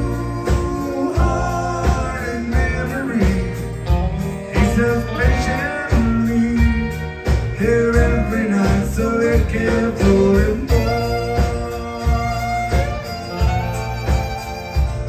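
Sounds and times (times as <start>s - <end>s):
acoustic guitar: 0.0s - 15.0s
bass: 0.0s - 15.0s
drums: 0.0s - 15.0s
fiddle: 10.7s - 15.0s.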